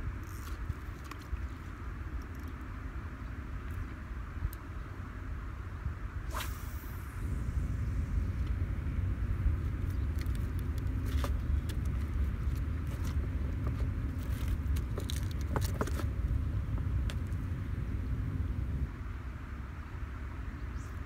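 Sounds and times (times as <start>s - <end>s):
wind buffeting microphone: 5.7s - 19.0s.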